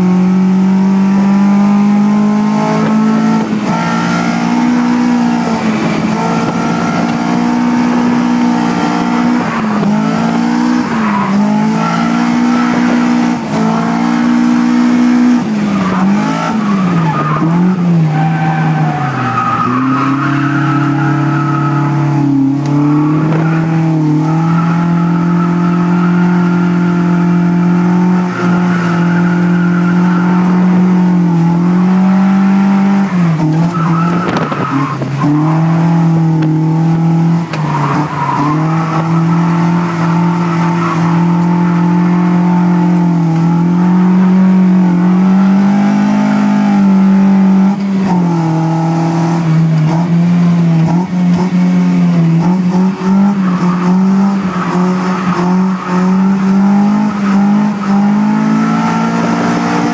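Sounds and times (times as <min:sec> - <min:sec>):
car engine revving high: 0:00.0 - 0:59.9
tyres squealing: 0:15.4 - 0:30.5.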